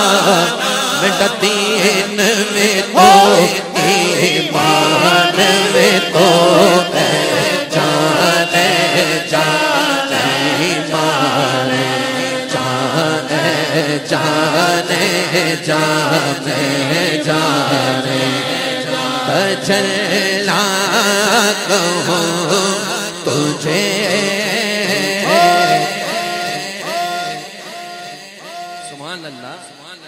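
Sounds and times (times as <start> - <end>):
lead voice singing: 0.0 - 30.0
crowd chanting over loudspeakers: 2.8 - 20.4, 25.0 - 30.0.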